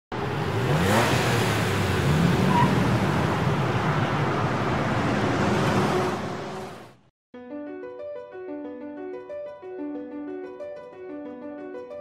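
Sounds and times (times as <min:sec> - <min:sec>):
vehicle engine speeding up: 0:00.1 - 0:07.0
traffic noise: 0:00.1 - 0:07.1.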